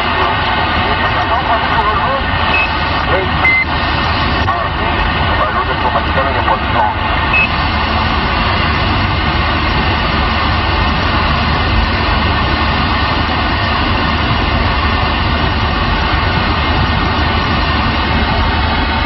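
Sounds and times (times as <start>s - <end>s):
radio static hiss: 0.0s - 7.9s
low hum: 0.0s - 19.0s.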